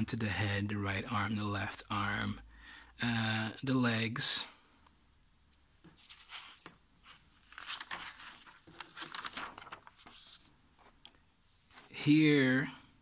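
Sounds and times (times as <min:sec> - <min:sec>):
paper pages rustling: 0:05.8 - 0:12.0.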